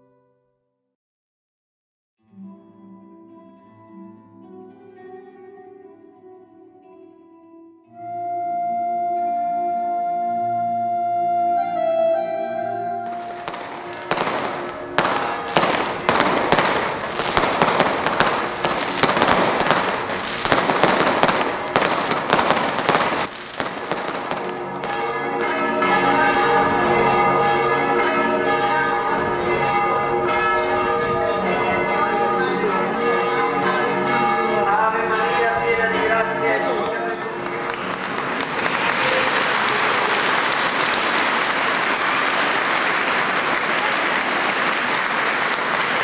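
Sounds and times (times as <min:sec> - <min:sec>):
church bells ringing: 0:11.6 - 0:38.6
fireworks bangs and crackles: 0:13.0 - 0:27.2.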